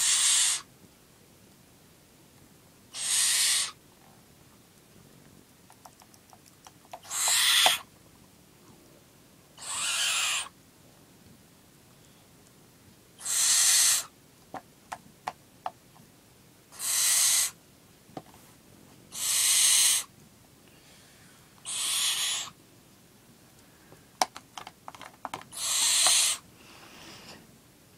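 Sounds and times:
barn owl chick screeching: 0.0 - 0.7, 2.9 - 3.8, 7.0 - 7.9, 9.6 - 10.6, 13.2 - 14.1, 16.7 - 17.6, 19.1 - 20.1, 21.6 - 22.6, 25.5 - 26.4.

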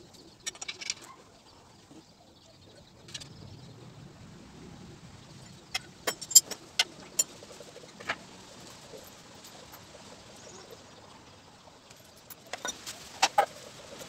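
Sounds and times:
metal bolts clicking and clinking: 6.0 - 6.6.

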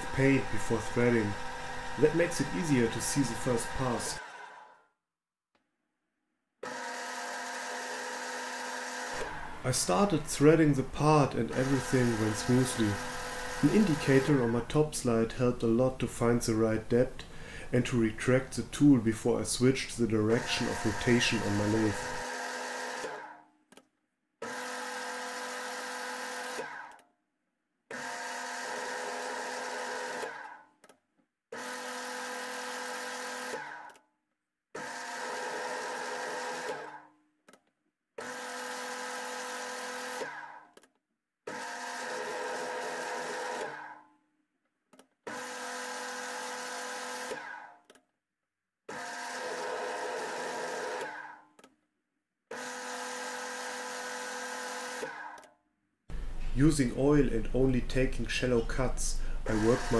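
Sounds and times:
metal lathe motor hum and whine: 0.0 - 4.6, 11.5 - 14.6, 20.4 - 23.2, 59.5 - 59.9
click: 47.8 - 48.0.

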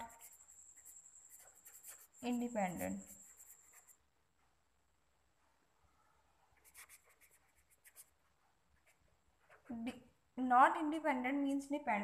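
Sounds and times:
pen scratching on paper: 0.0 - 4.1, 6.6 - 8.2.

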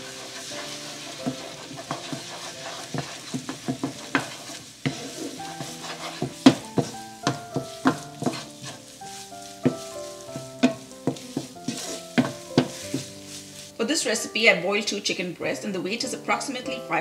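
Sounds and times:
wooden spatula scraping a pan: 0.0 - 14.5
light sizzle: 0.0 - 17.0
spatula knocking against pan: 1.2 - 8.8, 9.4 - 13.2.

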